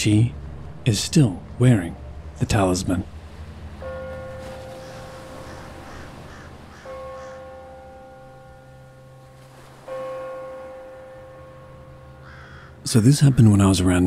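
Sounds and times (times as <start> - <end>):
ringing chime-like tone: 0.0 - 13.4
low steady drone: 0.0 - 14.0
faint crow caws: 4.6 - 7.8, 12.1 - 13.5.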